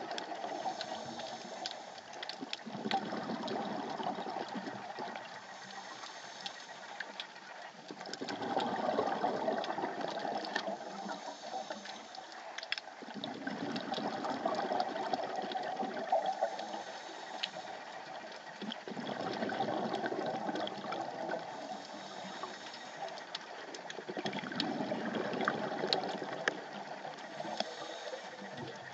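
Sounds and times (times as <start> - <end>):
exhaled bubbles underwater: 0.0 - 28.9
regulator hiss: 0.5 - 2.0, 5.4 - 7.2, 10.7 - 12.3, 16.4 - 18.0, 21.5 - 23.1, 27.3 - 28.7.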